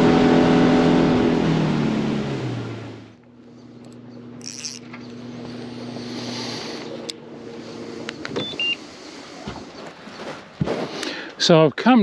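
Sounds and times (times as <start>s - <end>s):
boat motor humming: 0.0s - 11.3s
fishing reel clicks: 3.8s - 5.0s.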